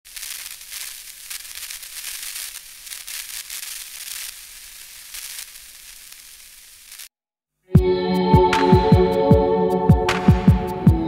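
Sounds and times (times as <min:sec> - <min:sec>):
crackling electronic static: 0:00.0 - 0:07.1.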